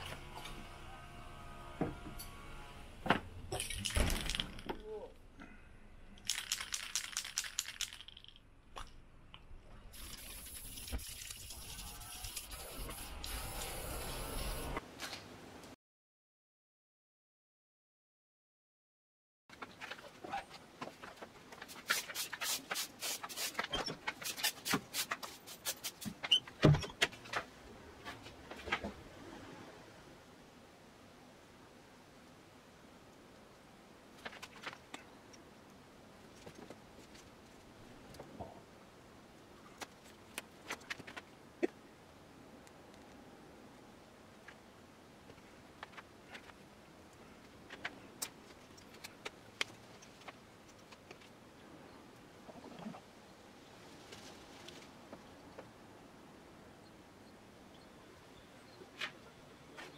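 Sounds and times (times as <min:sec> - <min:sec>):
spray can ball rattling: 0:06.2 - 0:08.4, 0:10.0 - 0:13.4
spray paint hissing: 0:09.9 - 0:14.8, 0:21.9 - 0:23.6
broom sweeping concrete: 0:21.7 - 0:23.6.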